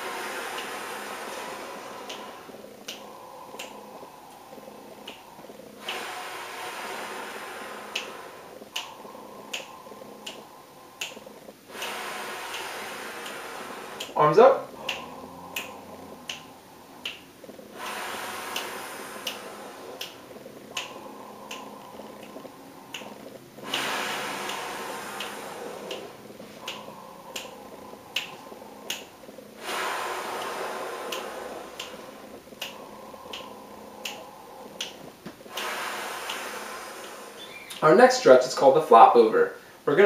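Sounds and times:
person breathing through mouth: 0.0 - 37.8.

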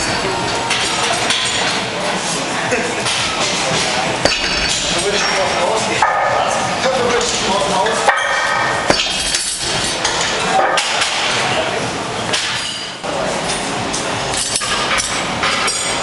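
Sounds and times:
steady noisy background: 0.0 - 16.0
iron weight plates clinking: 4.2 - 11.0.

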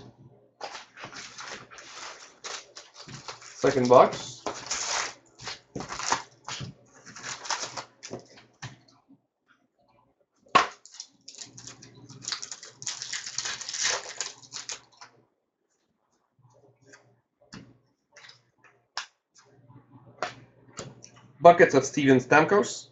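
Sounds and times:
wrapper crinkling and tearing: 0.6 - 8.4, 10.7 - 15.0.

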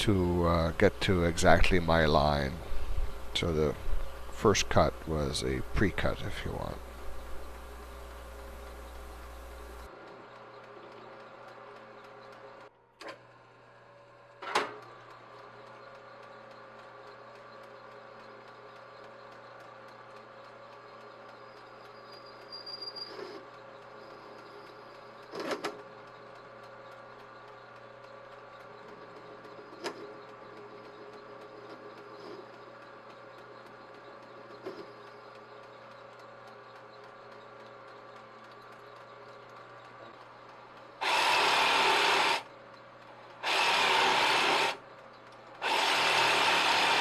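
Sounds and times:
lathe motor hum: 0.0 - 14.2, 23.2 - 47.0
cutting tool scraping: 43.4 - 44.8, 45.6 - 47.0.

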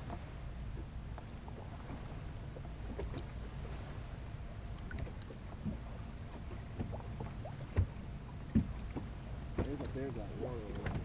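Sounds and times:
low boat rumble: 0.0 - 11.0
taps on boat hull: 7.7 - 11.0.

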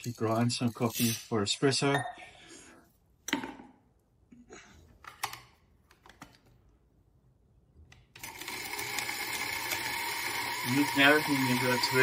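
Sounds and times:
coffee grinder motor grinding: 8.2 - 12.0.

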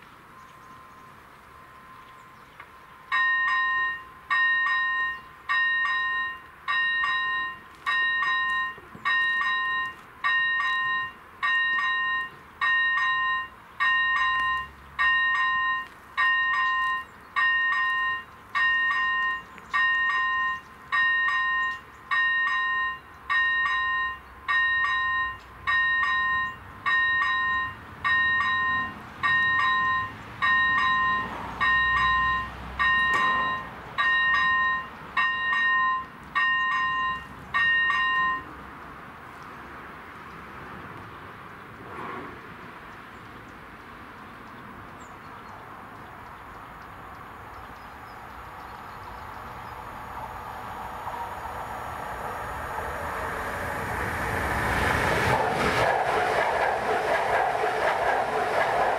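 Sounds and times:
level crossing warning bell: 3.0 - 38.7.

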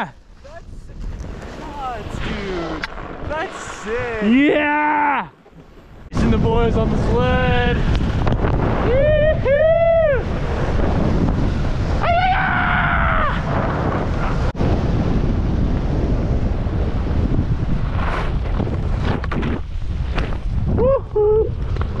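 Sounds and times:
person shouting: 4.2 - 5.3, 12.0 - 13.4
person whooping: 4.3 - 5.3, 8.8 - 10.3, 12.0 - 13.5, 20.8 - 21.6
wind buffeting microphone: 5.4 - 22.0.

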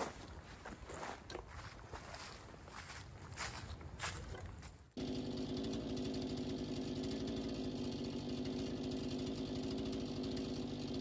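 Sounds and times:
footsteps: 0.0 - 4.9
engine running steadily: 3.8 - 11.0.

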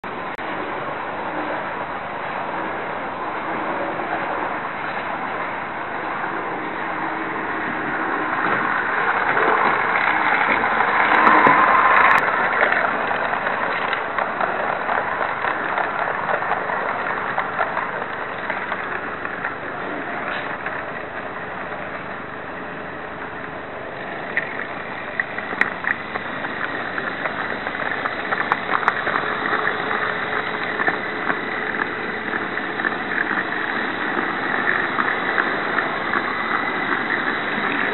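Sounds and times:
model train rolling rattle: 0.0 - 37.9
sharp clicks and crackles: 6.1 - 37.9.

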